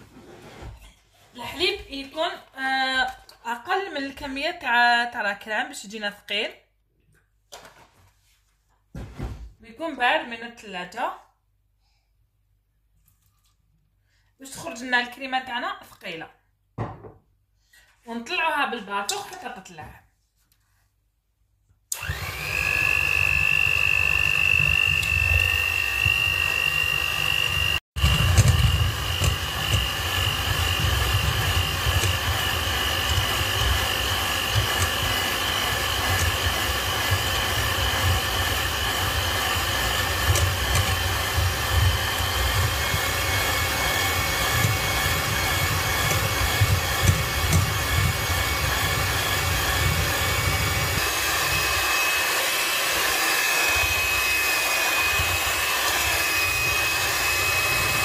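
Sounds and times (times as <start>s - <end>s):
electric hand mixer whining: 21.9s - 58.0s.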